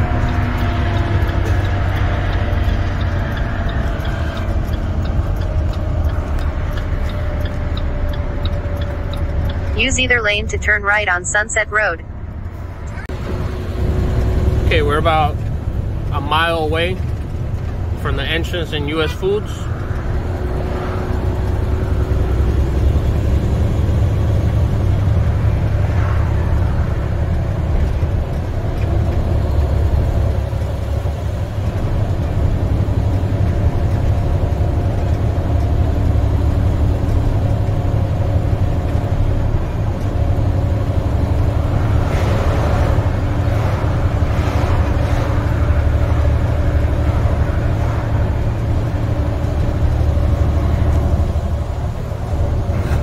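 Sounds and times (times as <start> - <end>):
diesel engine droning: 0.0 - 53.0
tyre and road noise: 0.0 - 53.0.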